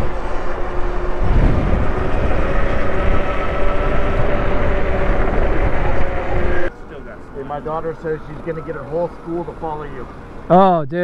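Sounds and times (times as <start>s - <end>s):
wind rumbling on microphone: 0.0s - 6.8s
electric motor whine: 0.0s - 10.5s.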